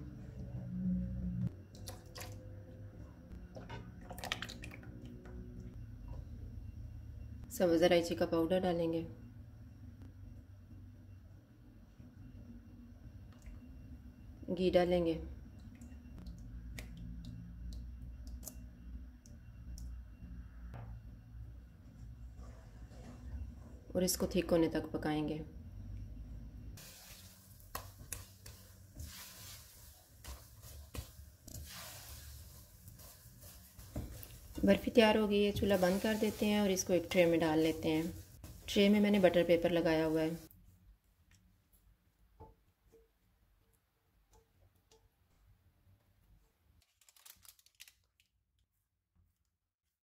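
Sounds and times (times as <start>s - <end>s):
low sizzle: 26.5s - 40.5s
spatula scraping a pan: 28.4s - 40.4s.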